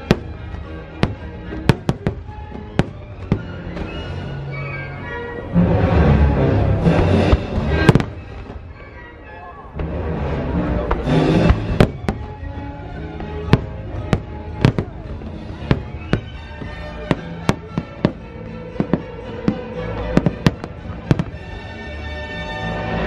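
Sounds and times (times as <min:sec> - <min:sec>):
fireworks bangs: 0:00.0 - 0:04.3, 0:06.8 - 0:08.8, 0:10.8 - 0:21.8.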